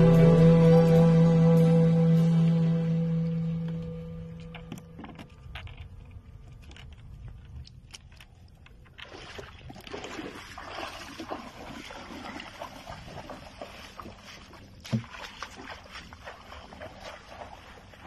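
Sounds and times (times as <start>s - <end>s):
water splashing around legs: 8.8s - 18.0s.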